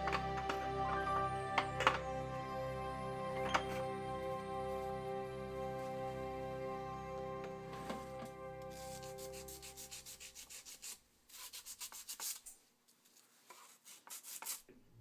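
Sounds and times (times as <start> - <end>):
background music: 0.0 - 10.4.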